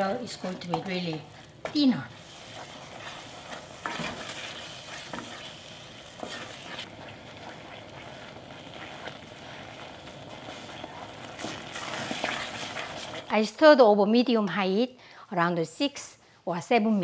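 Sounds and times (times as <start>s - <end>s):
wooden spoon scraping a saucepan: 0.3s - 13.3s
paste cooking hiss: 1.2s - 13.3s.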